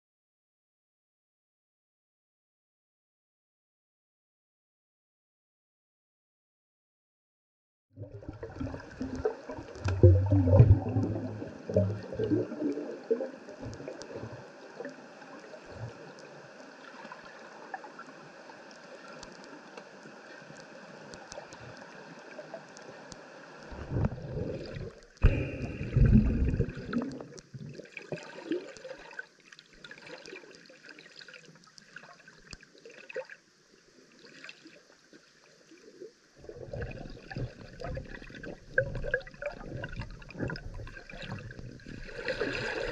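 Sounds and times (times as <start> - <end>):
underwater water noise gurgling: 8.0 - 33.5, 35.6 - 42.9
low rumbles of water movement: 8.0 - 42.9.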